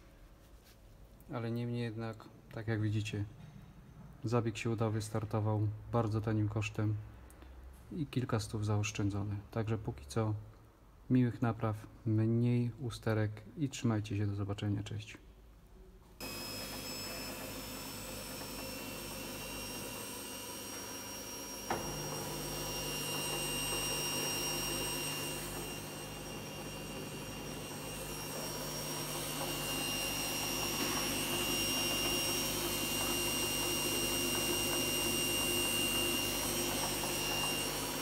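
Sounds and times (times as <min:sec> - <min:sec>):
high whine: 0:16.2 - 0:33.0
washing machine low hum: 0:16.2 - 0:38.0.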